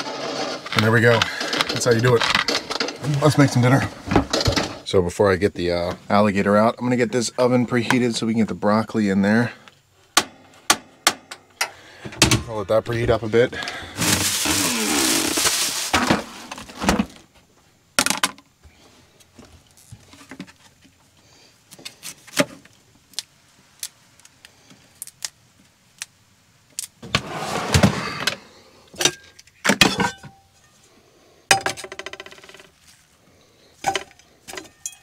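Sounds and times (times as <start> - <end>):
rustling clatter: 0.0 - 4.9, 13.1 - 17.2.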